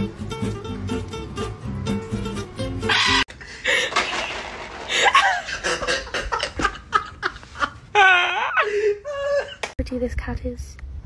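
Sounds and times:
person laughing hard: 0:02.9 - 0:09.7.

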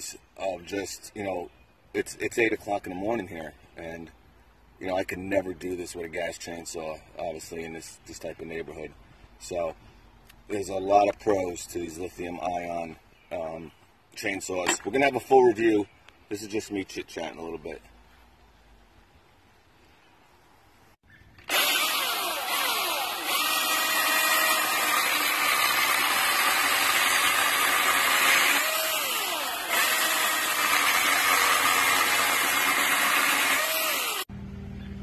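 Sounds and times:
electric chainsaw cutting wood: 0:21.4 - 0:34.3.

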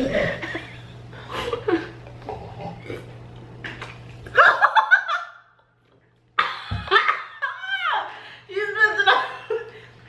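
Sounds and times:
women laughing and shrieking: 0:06.4 - 0:08.1.

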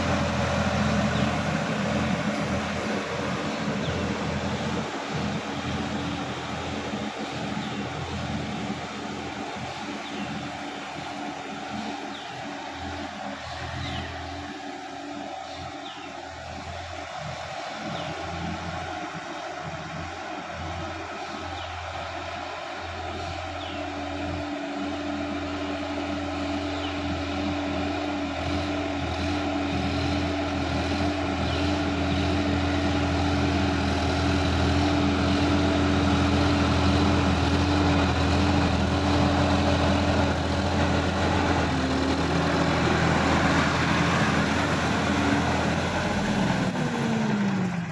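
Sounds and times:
rotary tiller churning mud: 0:00.0 - 0:10.7, 0:25.9 - 0:47.9
tractor diesel engine running: 0:00.0 - 0:47.9.

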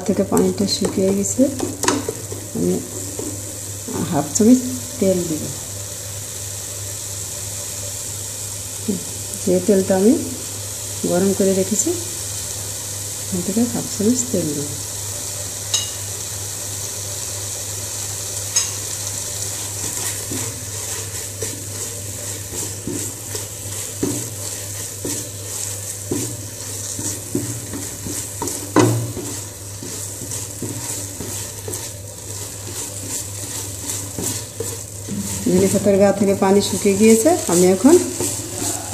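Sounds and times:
spatula stirring and scraping pan: 0:00.0 - 0:08.7, 0:09.6 - 0:38.9
paste sizzling in oil: 0:00.0 - 0:38.9
spatula knocking on pan: 0:00.3 - 0:03.5, 0:22.4 - 0:36.0, 0:36.6 - 0:38.9.

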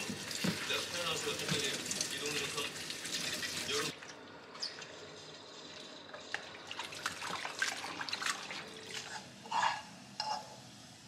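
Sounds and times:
tap water splashing into sink: 0:00.0 - 0:03.9.

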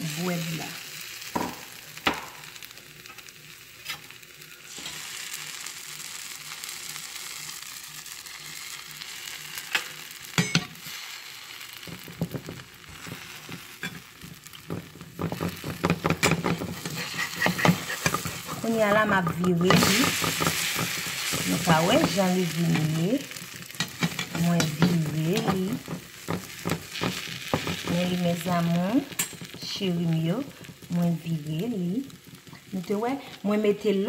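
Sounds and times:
bread sizzling in butter: 0:00.0 - 0:34.0
spatula scraping a frying pan: 0:04.7 - 0:05.4, 0:08.6 - 0:29.8.

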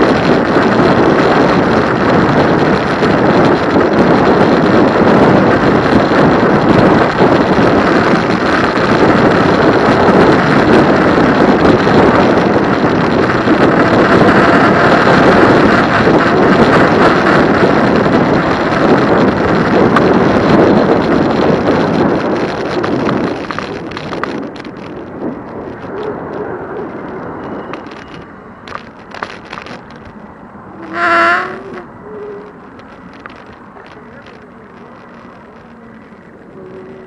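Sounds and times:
wind rushing over microphone: 0:00.0 - 0:37.0
clicks and rattles: 0:27.0 - 0:30.2
brief pitched tone: 0:30.8 - 0:32.5.

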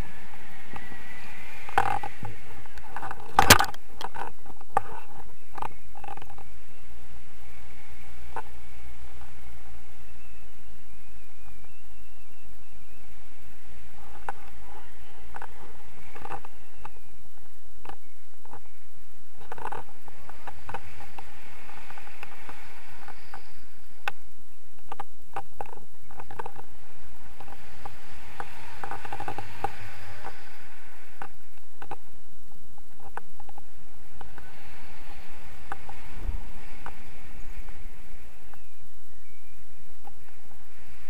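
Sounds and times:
wind rushing over microphone: 0:00.0 - 0:41.0.

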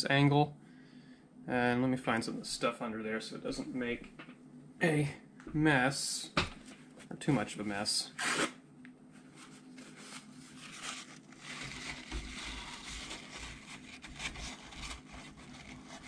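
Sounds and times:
paper towel crumpling: 0:09.2 - 0:16.0.

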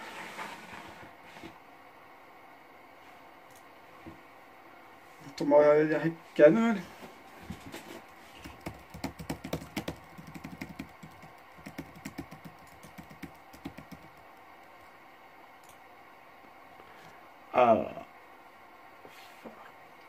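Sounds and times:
typing on computer keyboard: 0:08.4 - 0:14.7.

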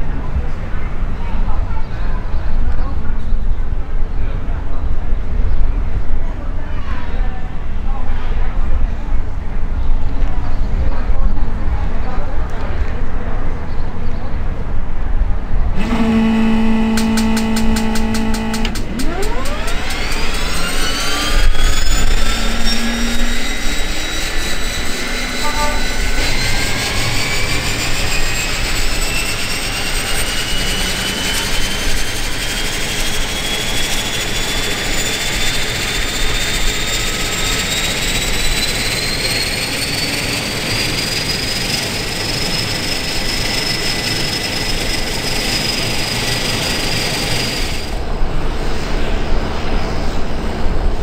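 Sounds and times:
propeller drone: 0:14.4 - 0:51.0
turboprop turbine whine rising: 0:14.4 - 0:51.0.

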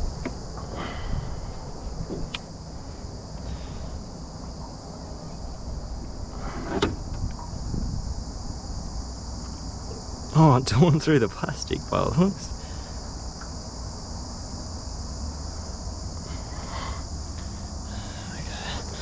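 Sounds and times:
high insect drone: 0:00.0 - 0:19.0.

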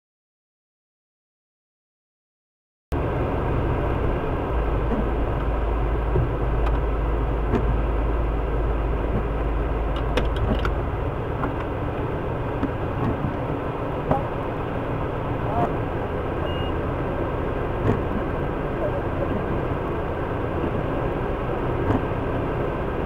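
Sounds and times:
vehicle engine idling: 0:02.9 - 0:23.0
windshield wiper clicks: 0:04.8 - 0:08.0, 0:08.9 - 0:14.4, 0:17.6 - 0:18.4, 0:21.7 - 0:22.3.

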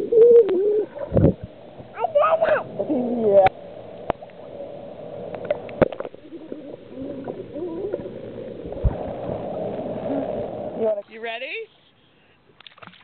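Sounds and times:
pool water sloshing and gurgling: 0:00.0 - 0:11.0, 0:12.6 - 0:13.0.

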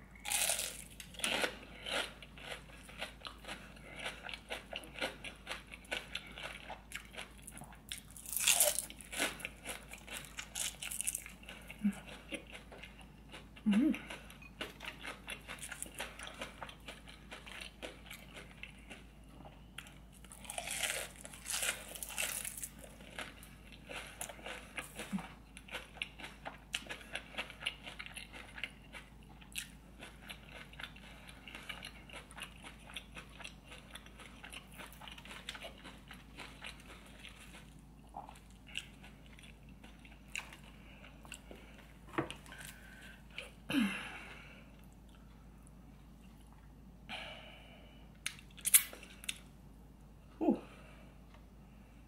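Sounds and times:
crunchy bites and chewing: 0:00.2 - 0:11.6, 0:19.8 - 0:40.6.

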